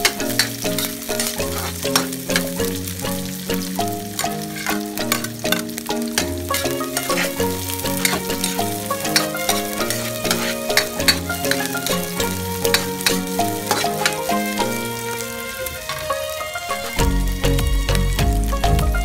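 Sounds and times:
ladle scraping a wok: 0.0 - 2.5, 6.5 - 14.9
ladle clicking on pan: 0.0 - 14.9
aromatics sizzling in a wok: 0.0 - 19.0
background music: 0.0 - 19.0.

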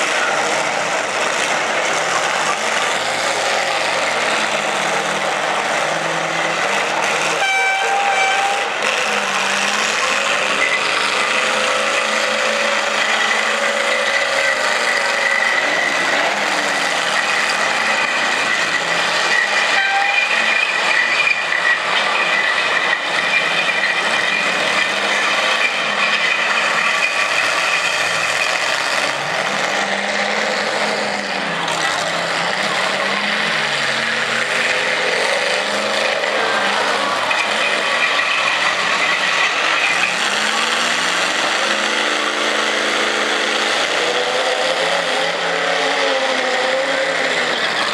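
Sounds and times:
car engines revving: 0.0 - 47.9
high steady horn-like tone: 7.3 - 8.8, 17.1 - 24.4.

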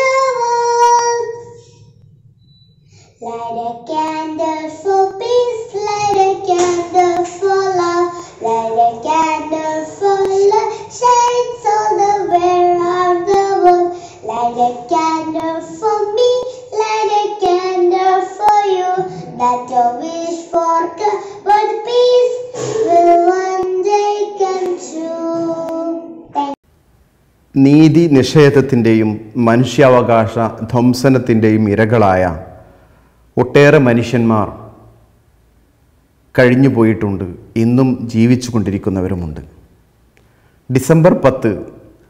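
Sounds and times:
girl singing: 0.0 - 1.9, 3.2 - 26.6.

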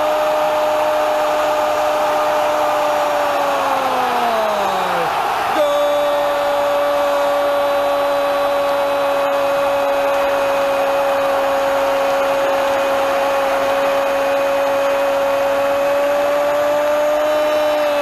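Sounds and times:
constant whining tone: 0.0 - 18.0
stadium crowd cheering: 0.0 - 18.0.

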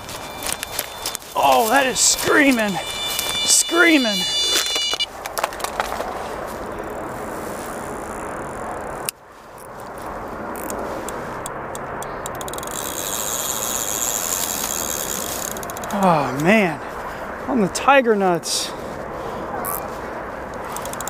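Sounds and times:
fishing reel screaming: 0.0 - 5.1, 12.6 - 15.8.

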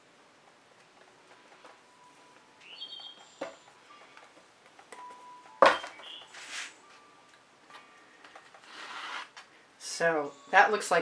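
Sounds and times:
spatula scraping paint on canvas: 8.6 - 9.4.

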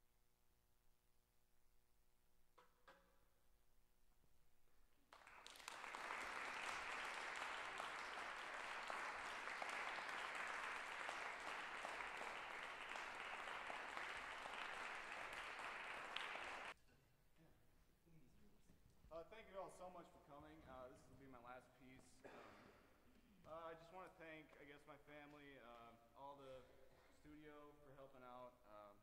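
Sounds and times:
audience applauding: 5.1 - 16.8.

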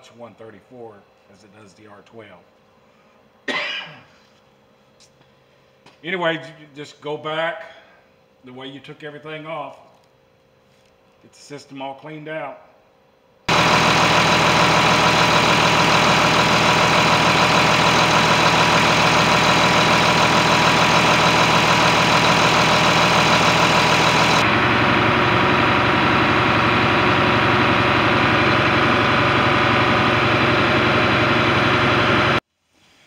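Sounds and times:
diesel tractor engine idling: 13.5 - 32.4.

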